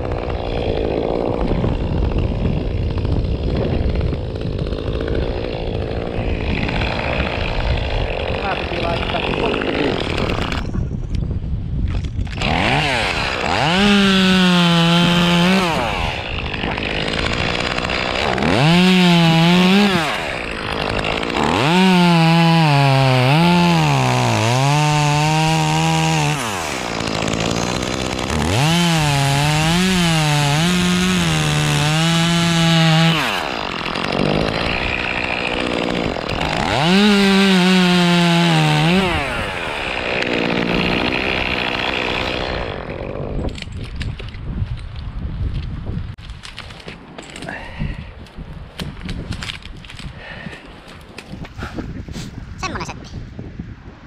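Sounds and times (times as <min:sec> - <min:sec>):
chainsaw revving and cutting: 0:00.0 - 0:10.7, 0:12.3 - 0:43.7.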